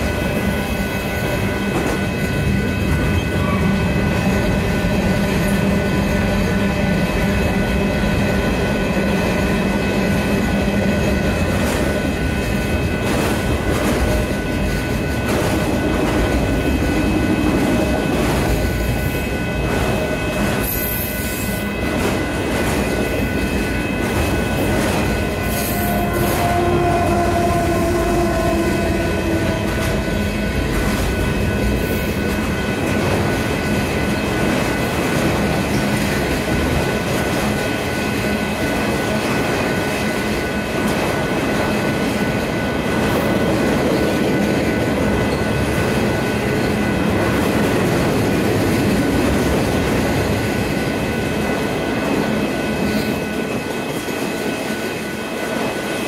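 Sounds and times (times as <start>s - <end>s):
wheels rumbling on rail: 0.0s - 56.0s
wheels clacking over rail joints: 8.5s - 55.9s
high-pitched tones: 23.1s - 32.3s.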